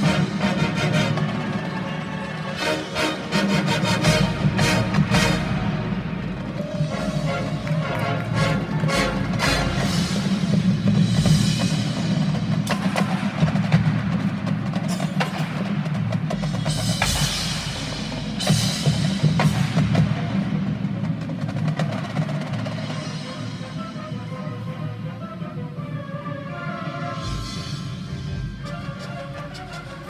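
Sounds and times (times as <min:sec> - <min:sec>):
marching band playing: 0:00.0 - 0:30.0
snare and bass drums: 0:03.3 - 0:23.4.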